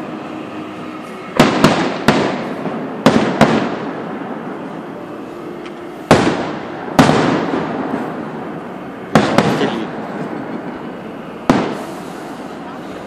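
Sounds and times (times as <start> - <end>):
firework shells booming: 1.3 - 4.6, 6.1 - 10.7, 11.4 - 12.6.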